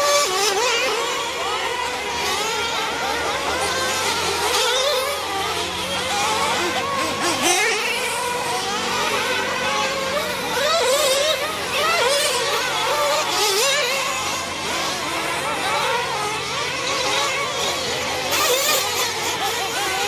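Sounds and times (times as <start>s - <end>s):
rc car engines revving: 0.0s - 20.0s.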